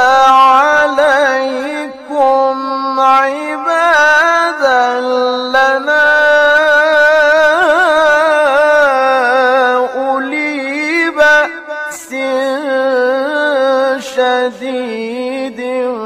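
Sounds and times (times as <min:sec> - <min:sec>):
man reciting melodically: 0:00.0 - 0:16.0.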